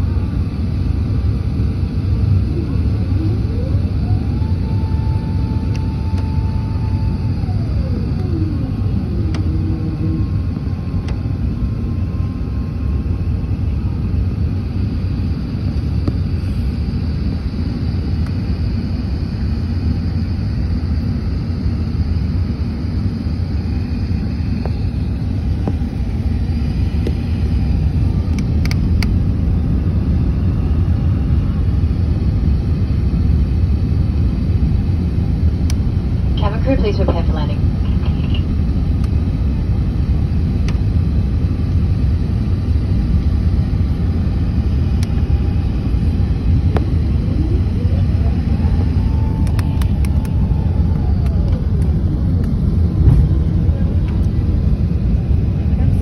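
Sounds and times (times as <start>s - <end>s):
low rumble of engines and airflow: 0.0s - 56.0s
whine dropping in pitch: 2.3s - 13.9s, 35.7s - 38.6s, 44.9s - 55.9s.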